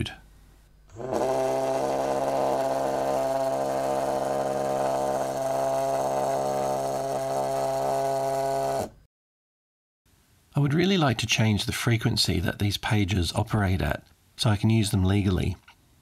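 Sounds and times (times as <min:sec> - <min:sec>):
pager vibrating on wooden desk: 0:00.9 - 0:09.0.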